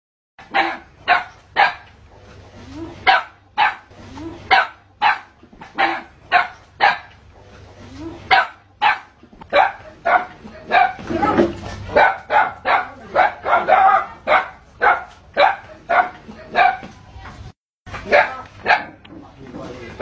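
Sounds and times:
dog barking: 0:00.4 - 0:01.9, 0:03.0 - 0:03.9, 0:04.5 - 0:07.1, 0:08.3 - 0:11.1, 0:11.9 - 0:17.0, 0:18.1 - 0:19.0.

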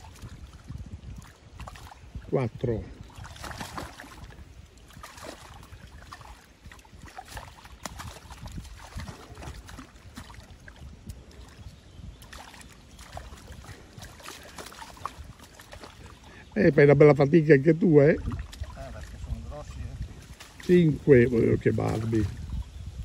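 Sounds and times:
river water splashing: 0:00.0 - 0:22.9.

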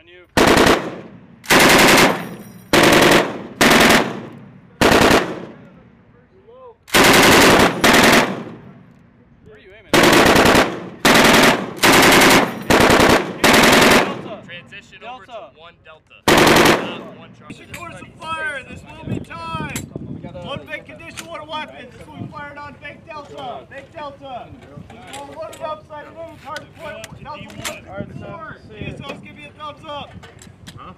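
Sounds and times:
machine gun firing bursts: 0:00.4 - 0:05.6, 0:06.9 - 0:08.6, 0:09.9 - 0:14.4, 0:16.3 - 0:17.1.

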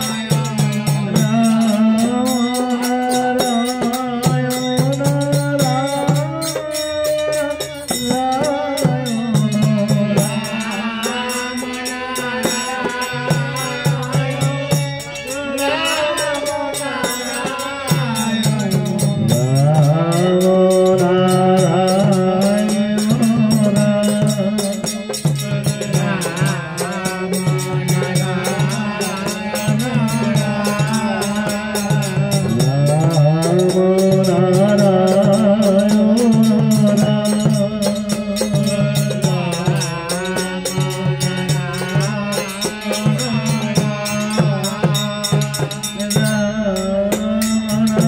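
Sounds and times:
harmonium: 0:00.0 - 0:48.0
men singing devotional song: 0:00.0 - 0:48.0
hand drum beat: 0:17.9 - 0:48.0.

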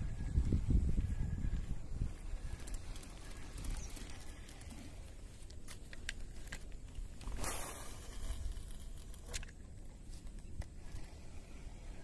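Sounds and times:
wind rumble on microphone: 0:00.0 - 0:05.5
faint clicks: 0:02.4 - 0:07.0.

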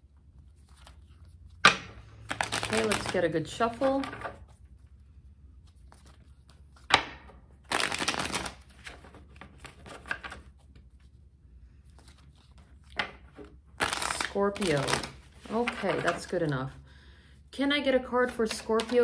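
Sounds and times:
cards riffling: 0:00.4 - 0:03.2, 0:07.6 - 0:11.0, 0:11.9 - 0:16.3
cards sliding rustles: 0:00.4 - 0:04.8, 0:05.6 - 0:06.9, 0:07.7 - 0:11.2, 0:11.8 - 0:16.5.

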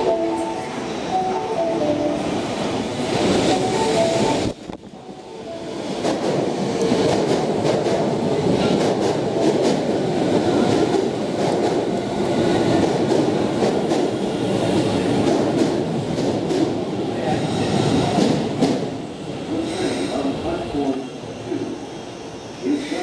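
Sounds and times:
train rumbling past: 0:00.0 - 0:23.0.

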